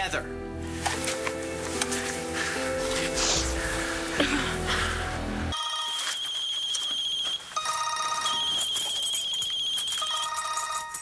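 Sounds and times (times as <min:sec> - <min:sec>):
phone ringtone beeping: 0:05.5 - 0:11.0.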